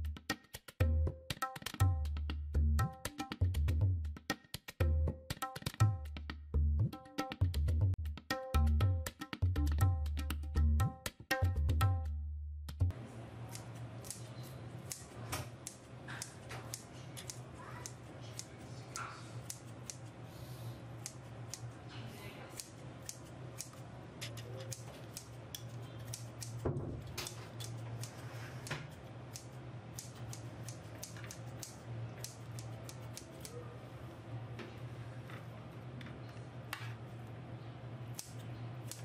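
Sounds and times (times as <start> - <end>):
scissors snipping: 13.5 - 20.1, 22.6 - 26.6, 27.2 - 28.2, 29.3 - 33.6, 38.1 - 39.0.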